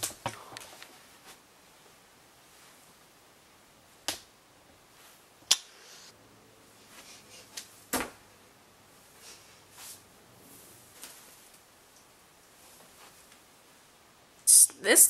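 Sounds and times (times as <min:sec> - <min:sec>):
rustling: 0:09.0 - 0:14.0.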